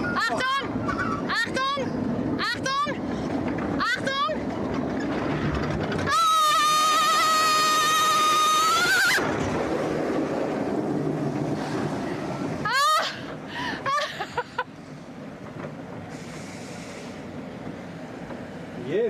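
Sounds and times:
boat splash and rushing water: 0:05.2 - 0:15.0
people laughing: 0:13.6 - 0:14.7.

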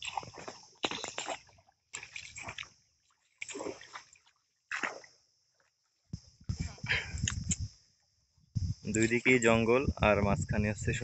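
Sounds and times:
paddle splashing in water: 0:00.0 - 0:05.2.

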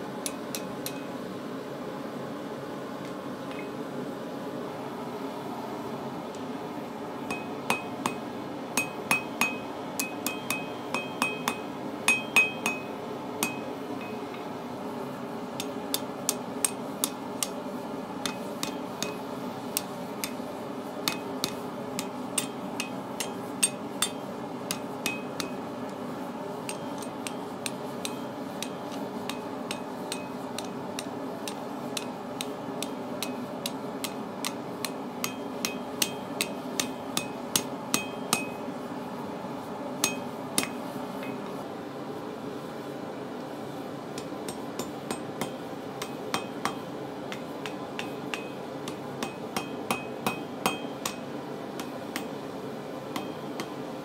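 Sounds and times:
hammer striking steel on anvil: 0:00.2 - 0:01.1, 0:07.3 - 0:14.2, 0:15.6 - 0:17.6, 0:18.2 - 0:20.4, 0:21.0 - 0:25.7, 0:26.6 - 0:38.7, 0:40.0 - 0:41.4, 0:44.2 - 0:52.4, 0:53.1 - 0:53.8.

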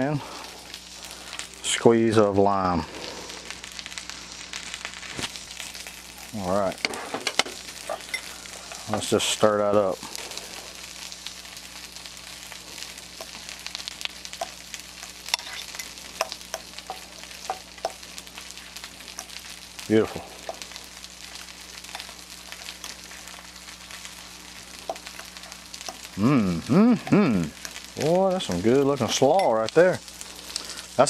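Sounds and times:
fish sizzling in oil: 0:00.0 - 0:31.0
fork scraping glass bowl: 0:15.3 - 0:15.9.

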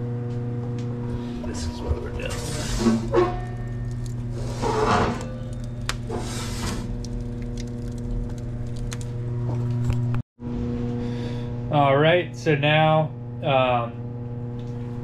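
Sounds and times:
low electrical hum: 0:00.0 - 0:15.0
wood fire crackling: 0:01.0 - 0:10.2.

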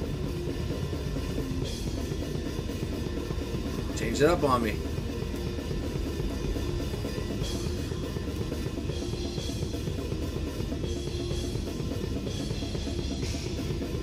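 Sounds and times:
fast kick drum and snare: 0:00.0 - 0:14.0.

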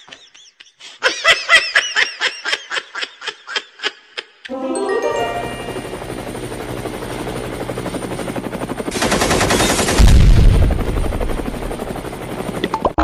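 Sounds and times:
helicopter rotor chopping with whine: 0:05.5 - 0:13.0
machine-gun fire: 0:08.9 - 0:11.5.

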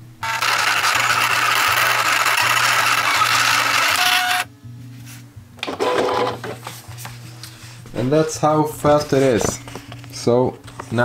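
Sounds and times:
vinyl cutter motors whirring: 0:00.0 - 0:04.5.

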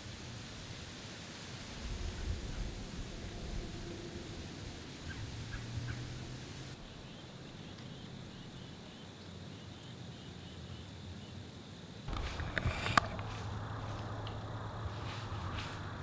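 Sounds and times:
light outdoor noise: 0:00.0 - 0:16.0
faint bird calls: 0:02.2 - 0:11.5.

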